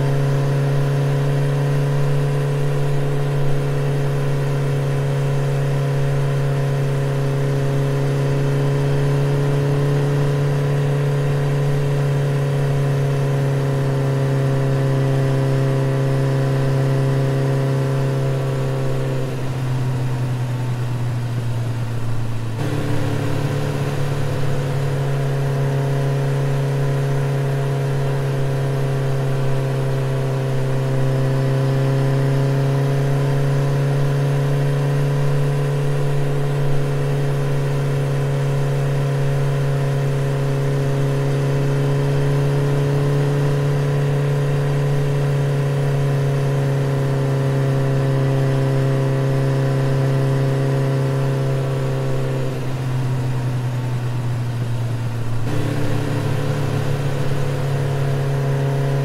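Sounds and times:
scooter engine running: 16.6s - 32.5s, 52.0s - 59.0s.

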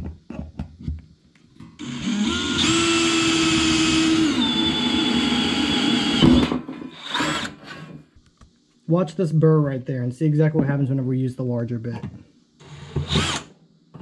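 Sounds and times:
drill bit cutting sheet metal: 1.8s - 7.8s, 12.6s - 13.5s
electric drill whining: 1.8s - 8.0s, 12.6s - 13.5s.

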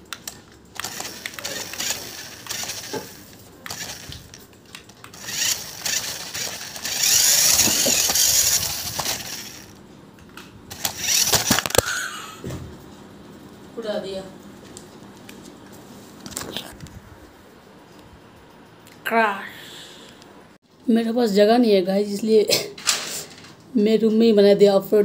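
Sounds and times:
toy car motor whirring: 0.8s - 4.4s, 5.0s - 9.8s, 10.7s - 11.8s.

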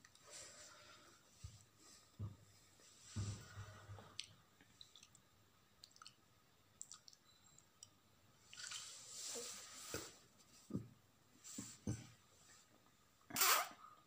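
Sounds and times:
soft rustling: 8.5s - 10.8s.

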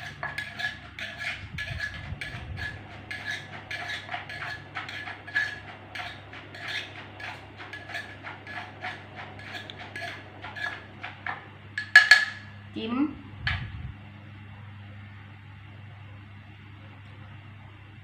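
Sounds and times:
pestle pounding in a mortar: 0.0s - 12.4s
spoon tapping a bowl: 11.3s - 12.5s.

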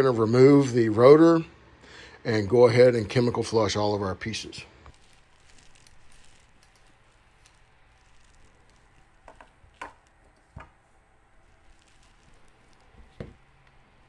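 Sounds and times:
dull knocks on workbench: 13.2s - 13.4s.

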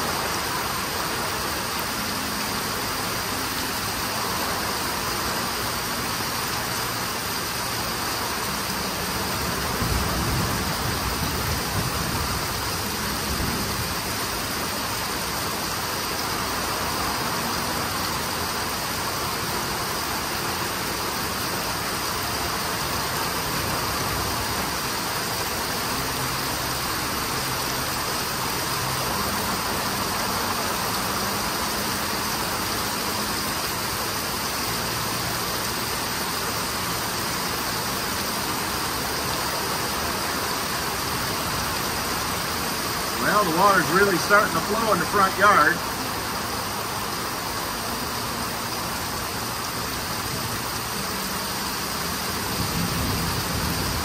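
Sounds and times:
heavy rain pouring: 0.0s - 54.0s.

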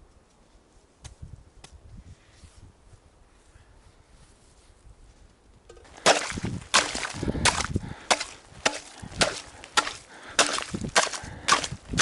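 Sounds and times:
hatchet chopping ice: 6.0s - 12.0s.

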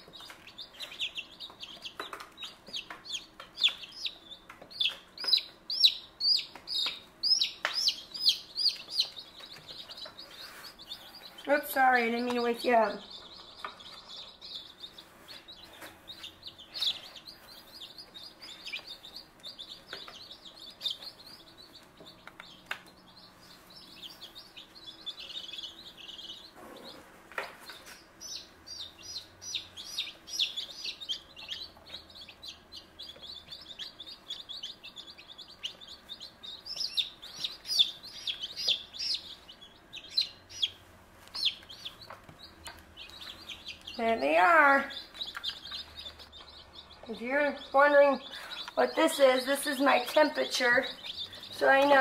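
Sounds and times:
baby chicks peeping: 0.0s - 52.0s.

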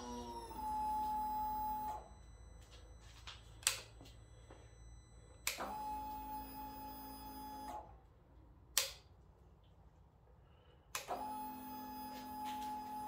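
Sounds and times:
steady electric whine: 0.0s - 7.9s
electrical switch clicks: 8.7s - 9.1s.

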